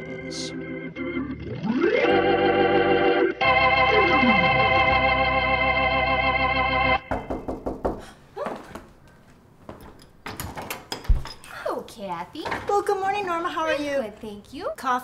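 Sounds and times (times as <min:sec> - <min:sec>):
organ chord: 0:00.0 - 0:07.1
sharp knocks: 0:07.1 - 0:08.1
room sounds: 0:07.1 - 0:14.4.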